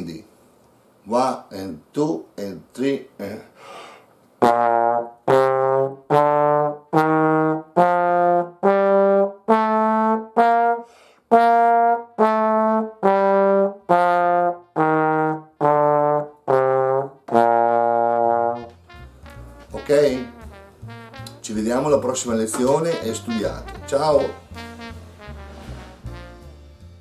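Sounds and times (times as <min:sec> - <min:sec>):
trombone playing a scale: 0:04.4 - 0:27.0.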